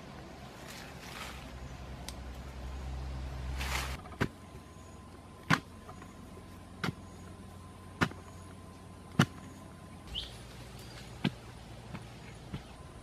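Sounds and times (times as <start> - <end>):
rising bird chirp: 9.4 - 11.2.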